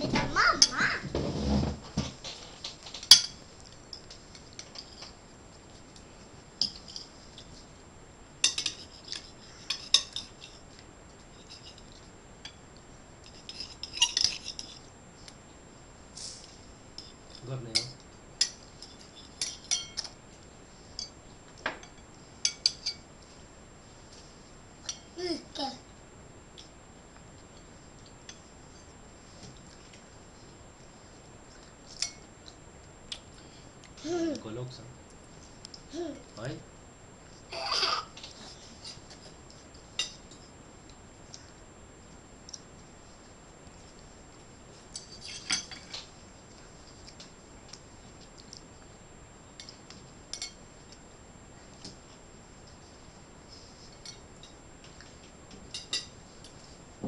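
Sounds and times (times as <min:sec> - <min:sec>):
fork clinking against bowl: 0:19.4 - 0:20.1.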